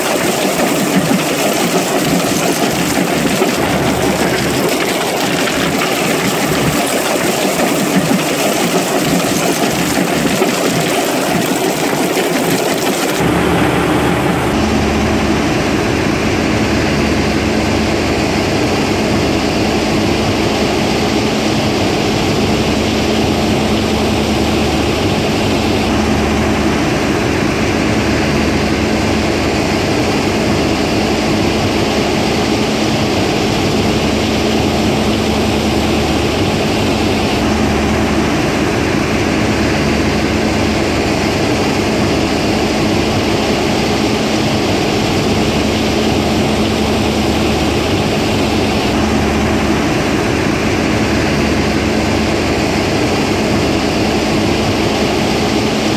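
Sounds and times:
stone crushing machinery: 0.0s - 14.6s.

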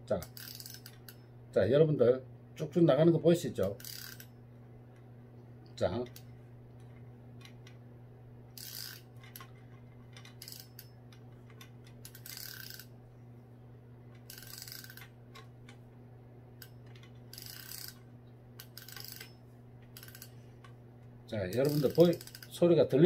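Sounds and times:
fishing reel drag clicking: 0.2s - 1.2s, 3.7s - 4.3s, 8.6s - 9.5s, 10.2s - 10.9s, 12.0s - 12.9s, 14.2s - 15.1s, 16.6s - 18.0s, 18.6s - 20.4s, 21.5s - 23.0s.

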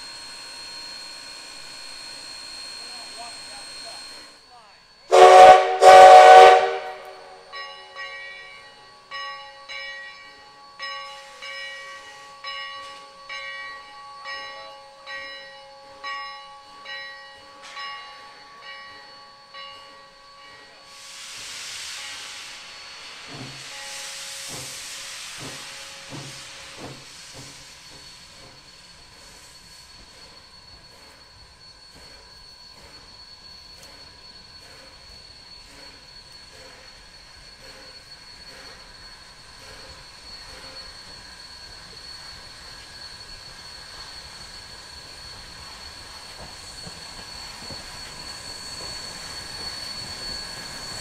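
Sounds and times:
locomotive bell ringing: 0.0s - 21.1s, 25.5s - 51.0s
steam hissing: 0.0s - 51.0s
steam exhaust chuffs: 5.1s - 7.5s, 20.9s - 51.0s
steam whistle blasts: 5.1s - 7.6s, 16.6s - 51.0s.

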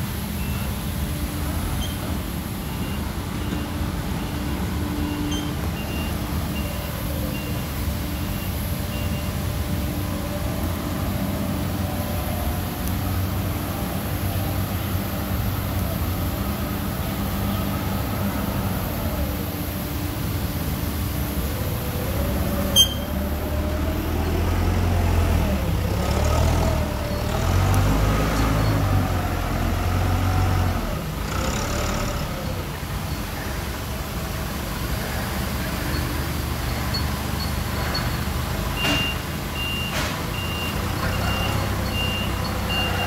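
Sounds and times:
reversing alarm beeps: 2.6s - 9.5s, 22.7s - 23.2s, 38.8s - 43.0s
forklift engine revving: 8.8s - 32.9s.

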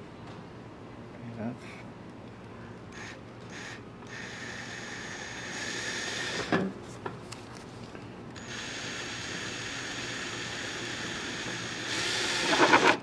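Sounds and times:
cordless drill whine: 3.0s - 6.5s, 8.4s - 13.0s.

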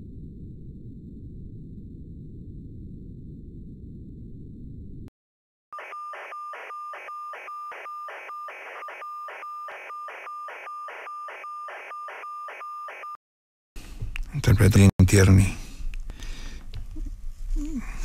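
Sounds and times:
pulsing radio tone beeps: 5.8s - 13.2s.

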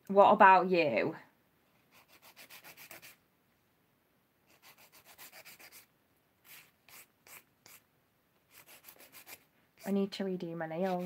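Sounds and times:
nail file rasping on nail: 1.9s - 3.2s, 4.5s - 7.8s, 8.5s - 10.0s, 10.8s - 11.0s.

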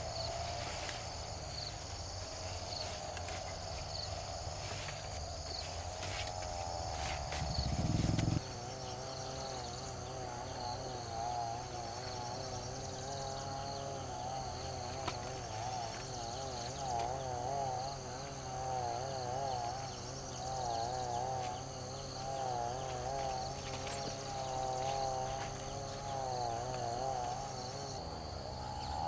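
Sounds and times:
insect wavering drone: 0.0s - 29.0s.

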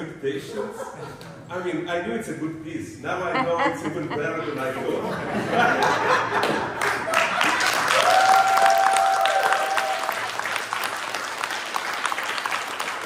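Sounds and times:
audience applause: 5.6s - 13.0s.

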